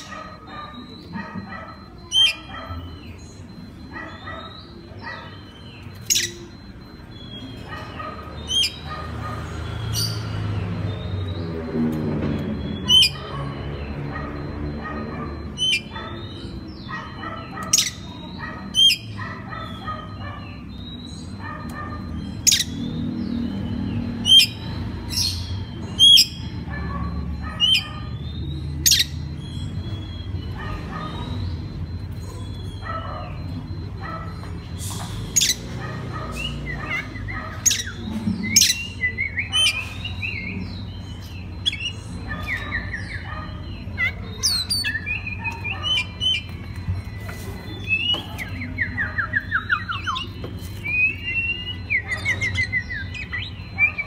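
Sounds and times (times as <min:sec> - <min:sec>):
bird singing whistled notes: 0:47.2 - 0:54.0.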